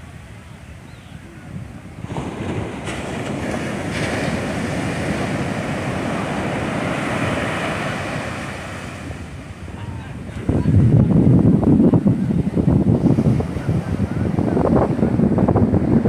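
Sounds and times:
sea surf breaking on beach: 0:00.0 - 0:16.0.

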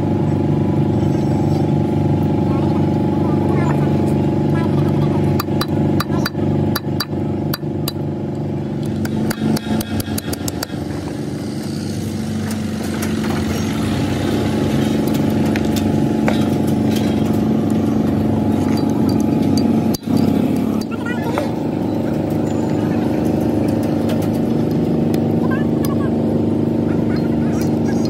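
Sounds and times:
engine running: 0:00.0 - 0:28.0
sharp taps and clinks: 0:18.6 - 0:21.0.

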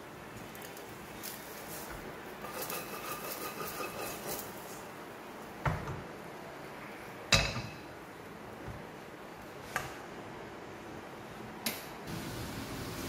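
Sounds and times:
wooden spatula scraping steel pan: 0:02.4 - 0:04.8.

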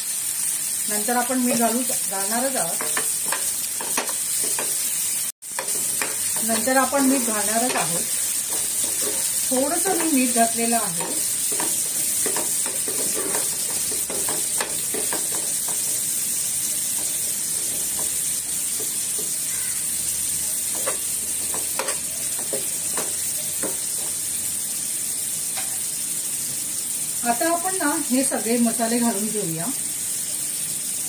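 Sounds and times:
onions sizzling in oil: 0:00.0 - 0:31.0
spatula stirring: 0:01.5 - 0:24.2
oil popping: 0:07.4 - 0:19.7.

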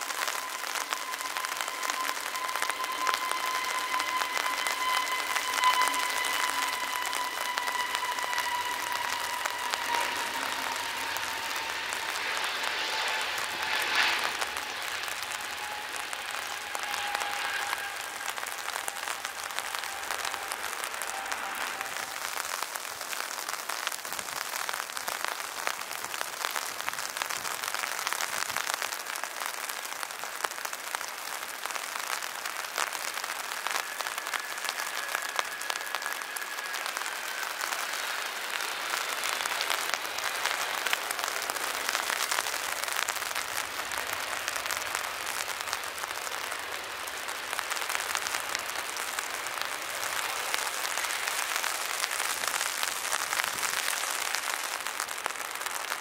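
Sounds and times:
jet engines whining: 0:00.0 - 0:23.2
heavy rain pattering: 0:00.0 - 0:56.0.

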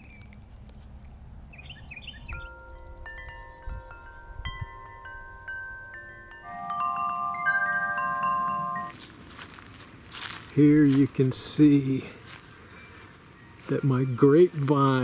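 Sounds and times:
metal wind chime ringing: 0:02.3 - 0:09.0, 0:12.8 - 0:15.0.

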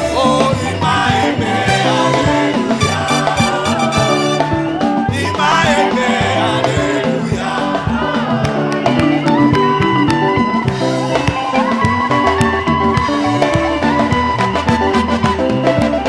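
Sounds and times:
people singing: 0:00.0 - 0:11.8
praise band playing: 0:00.0 - 0:16.0.

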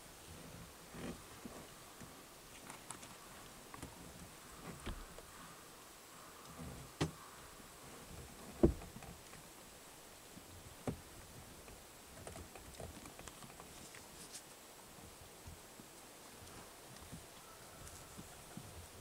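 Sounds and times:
soft thumps and crackles: 0:00.3 - 0:05.4, 0:08.0 - 0:09.4, 0:10.4 - 0:14.4.

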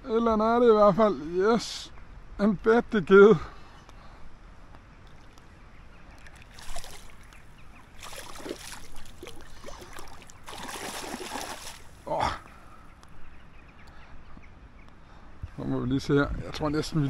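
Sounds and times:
fish splashing in water: 0:06.2 - 0:12.0.

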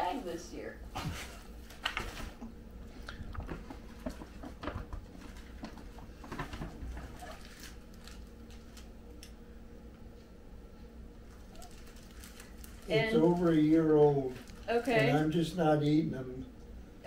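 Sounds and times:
gift packaging rustling and clicking: 0:03.4 - 0:08.9, 0:11.3 - 0:15.1.

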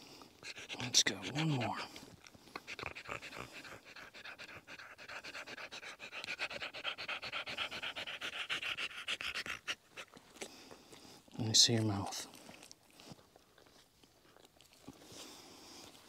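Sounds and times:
dog panting: 0:00.4 - 0:11.2.

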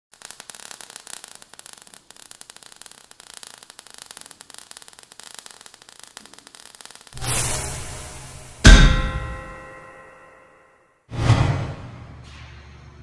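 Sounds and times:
steady hiss: 0:00.1 - 0:09.6
sparks crackling: 0:00.1 - 0:10.2.

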